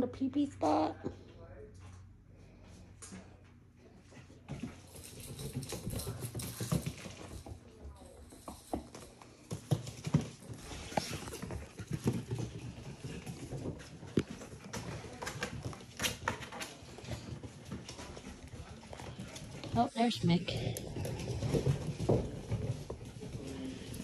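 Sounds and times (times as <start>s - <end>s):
puppy claws clicking on floor: 4.5s - 19.8s.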